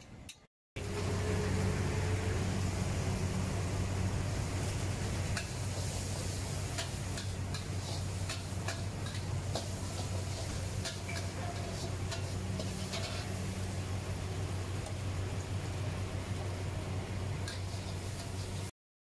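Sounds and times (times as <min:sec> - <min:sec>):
spatula clinking on a wok: 0:06.7 - 0:13.3.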